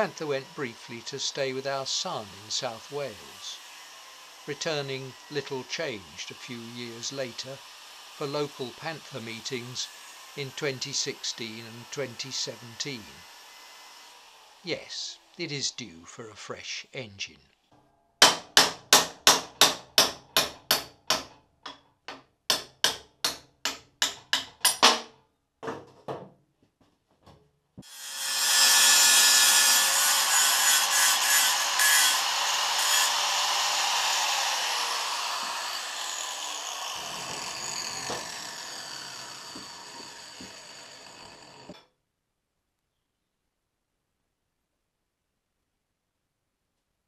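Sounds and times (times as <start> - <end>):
angle grinder cutting steel: 0.0 - 15.8, 27.8 - 41.8
hammer on metal: 18.2 - 21.3, 22.5 - 25.1.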